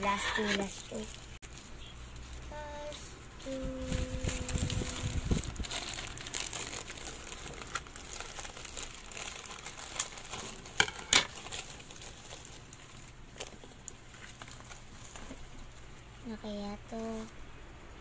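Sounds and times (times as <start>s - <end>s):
sharp plastic crackles: 0.0s - 16.0s
plastic pouch crinkling: 3.5s - 15.9s.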